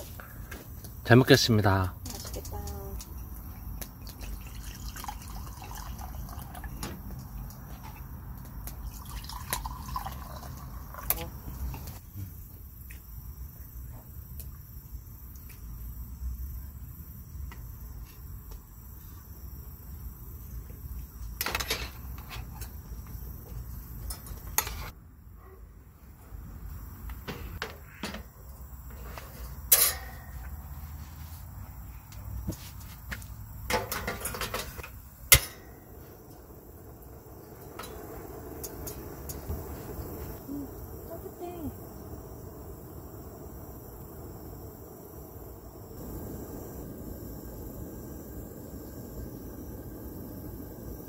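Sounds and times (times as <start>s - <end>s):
drink pouring into plastic glasses: 4.0s - 7.6s, 8.8s - 11.9s
loud metallic clank with ring: 29.7s - 30.4s
metal utensils clicking and knocking: 33.7s - 35.6s.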